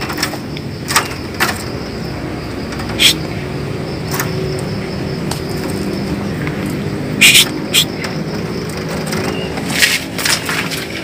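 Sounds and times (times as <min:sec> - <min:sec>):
steady low hum: 0:00.0 - 0:09.6
bird making harsh calls: 0:02.9 - 0:03.3, 0:07.1 - 0:08.1.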